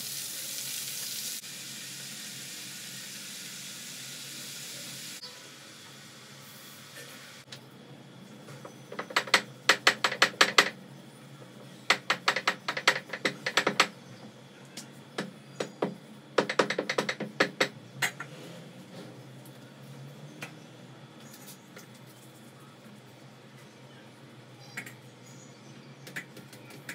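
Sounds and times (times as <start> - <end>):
rolling pin clacking on board: 8.9 - 10.8, 11.9 - 13.9, 15.2 - 18.2.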